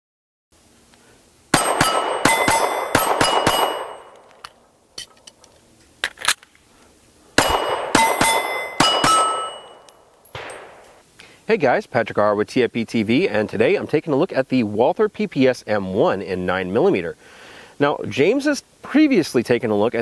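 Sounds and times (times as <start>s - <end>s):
steel targets ringing: 1.5s - 4.3s, 7.4s - 11.0s
pistol shots: 1.5s - 4.4s, 7.4s - 11.0s.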